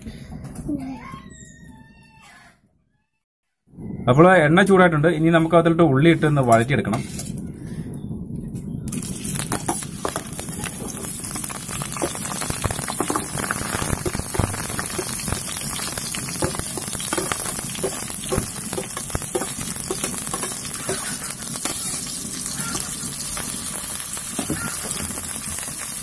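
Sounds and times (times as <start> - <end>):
sharp popping of oil: 8.9 - 21.9
onions sizzling in hot oil: 8.9 - 26.0.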